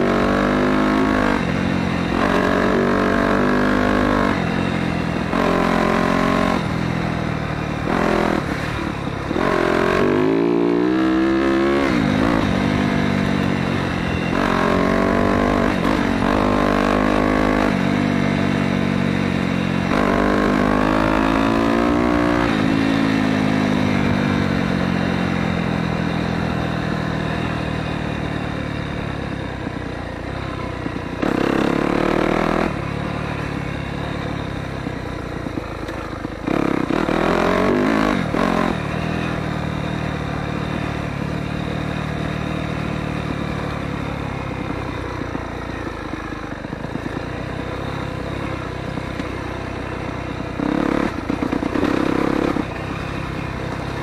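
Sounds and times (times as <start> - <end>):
dirt bike engine revving: 0.0 - 27.8, 31.2 - 34.1, 35.9 - 44.7, 50.5 - 54.0.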